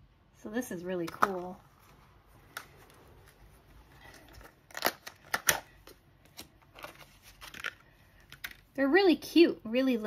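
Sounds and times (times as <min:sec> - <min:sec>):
plastic packaging crackling: 0:01.2 - 0:08.7.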